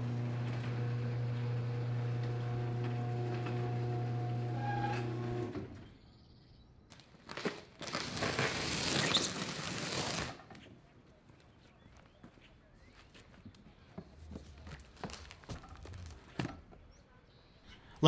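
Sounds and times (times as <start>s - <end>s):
garage door opener motor hum: 0.0s - 6.0s
cardboard box scraping on asphalt: 7.8s - 10.4s.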